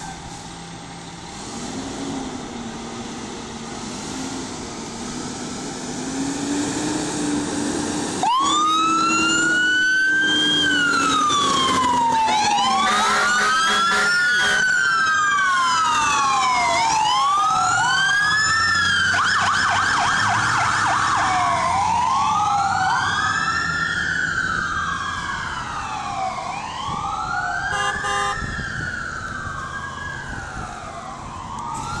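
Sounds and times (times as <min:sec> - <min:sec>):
electronic sirens wailing: 0:07.0 - 0:32.0
fast siren yelp: 0:08.2 - 0:32.0
horn note: 0:12.9 - 0:14.6, 0:27.7 - 0:28.4.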